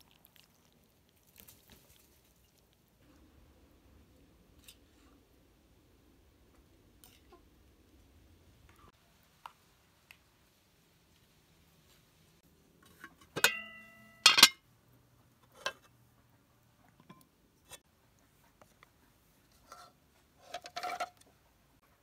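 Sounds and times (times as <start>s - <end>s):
dishes clattering: 12.9s - 14.6s
dishes clinking: 12.9s - 14.6s.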